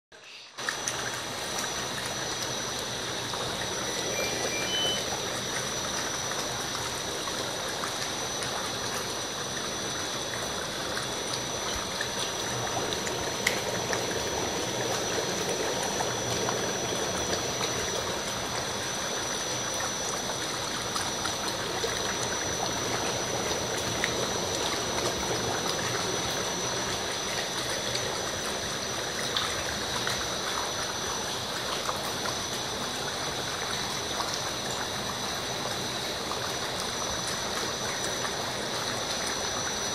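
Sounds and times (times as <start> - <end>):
hydromassage tub bubbling water: 0.1 - 39.9
high-pitched whine: 2.4 - 29.0.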